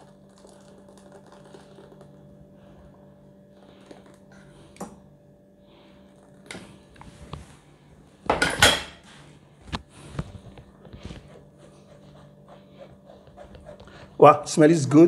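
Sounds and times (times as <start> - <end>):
kitchenware clattering: 8.3 - 9.0.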